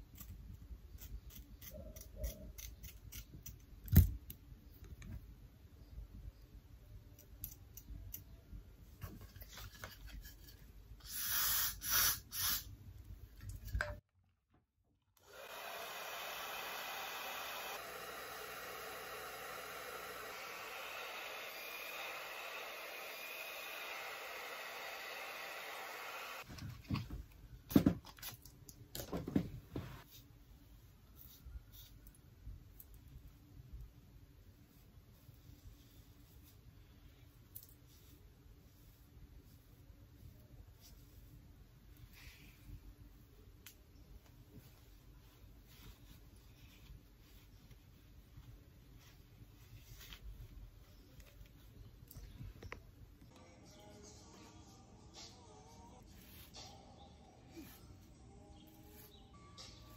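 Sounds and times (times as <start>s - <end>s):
aerosol spray hissing: 11.0s - 12.7s.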